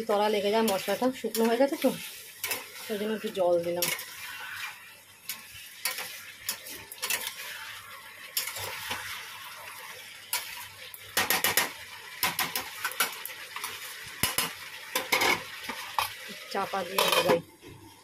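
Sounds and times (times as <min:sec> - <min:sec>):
light sizzle: 0:00.0 - 0:18.0
spatula scraping metal pan: 0:00.6 - 0:09.2, 0:16.9 - 0:17.4.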